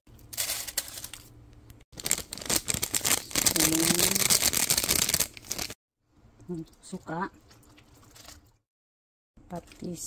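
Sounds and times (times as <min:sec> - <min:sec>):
seasonings crackling rattle: 0:00.2 - 0:01.3, 0:02.0 - 0:05.8.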